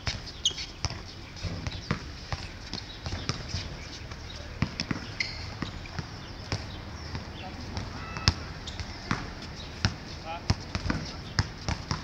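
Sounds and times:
basketball bouncing on hard court: 0:00.8 - 0:03.6, 0:04.6 - 0:12.0.

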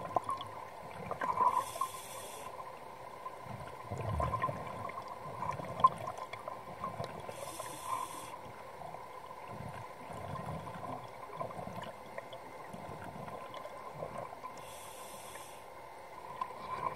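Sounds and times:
faint steady tone: 0:00.0 - 0:16.9
regulator hissing inhalations: 0:01.5 - 0:02.5, 0:07.3 - 0:08.4, 0:14.6 - 0:15.7
exhaled air bubbling: 0:03.4 - 0:15.5.

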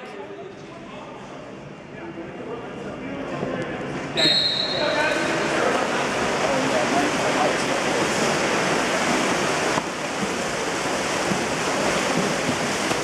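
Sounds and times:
swimmers splashing water: 0:04.1 - 0:13.0.

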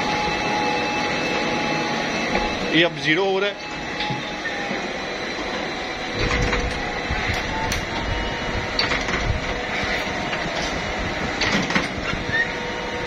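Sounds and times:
machinery clattering: 0:06.1 - 0:08.1, 0:08.7 - 0:12.5
sharp clicks and knocks: 0:08.8 - 0:09.6.

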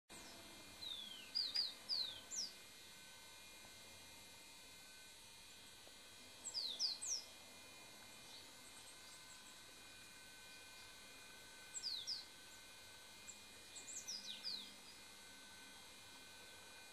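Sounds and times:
faint steady hum: 0:00.1 - 0:16.9
small bird whistling calls: 0:00.2 - 0:02.6, 0:06.4 - 0:07.3, 0:11.7 - 0:12.3, 0:13.7 - 0:15.0.

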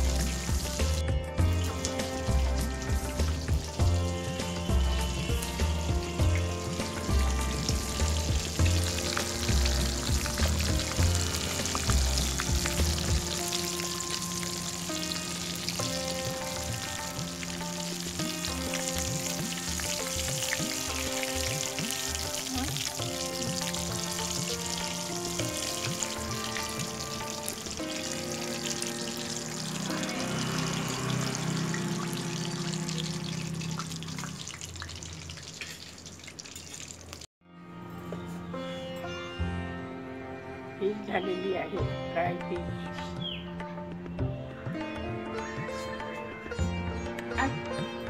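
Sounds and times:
background music: 0:00.0 - 0:34.4, 0:37.5 - 0:48.0
hot oil sizzling and crackling: 0:00.0 - 0:37.3.

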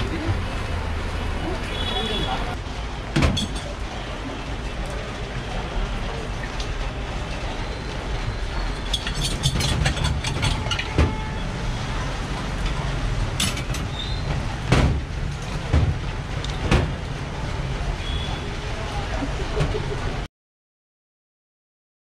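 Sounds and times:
low rumble of street traffic: 0:00.0 - 0:20.3
sharp clicks and knocks: 0:08.9 - 0:11.3.

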